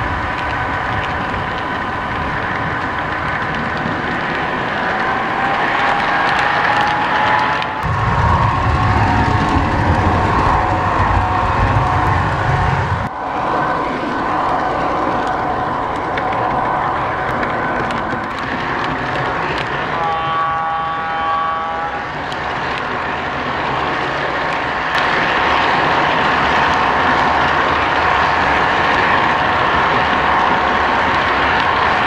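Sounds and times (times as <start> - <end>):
model train rumble and whine: 0.0 - 32.0
model diesel horn: 19.8 - 22.2.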